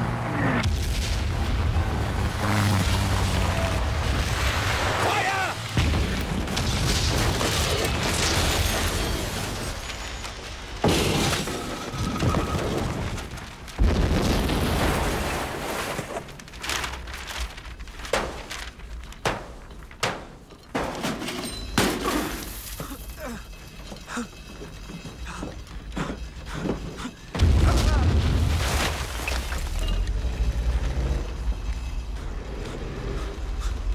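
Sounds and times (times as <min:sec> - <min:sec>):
debris shattering: 0:03.2 - 0:25.9, 0:27.3 - 0:32.1
heavy explosions booming: 0:27.4 - 0:28.7.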